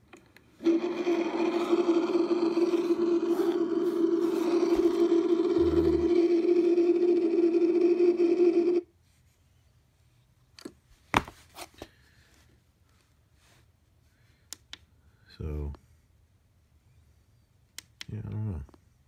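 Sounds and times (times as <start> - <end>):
loud droning tone from speaker: 2.8 - 7.2.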